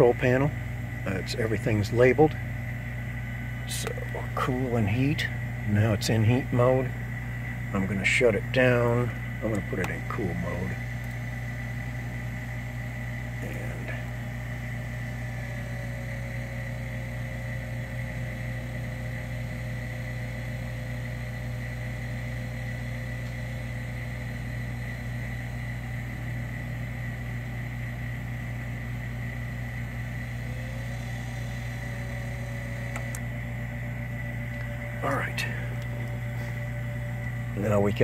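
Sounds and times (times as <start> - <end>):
steady electrical hum: 0.0 - 38.0
servo motor whine: 29.1 - 38.0
switch click: 32.9 - 33.2.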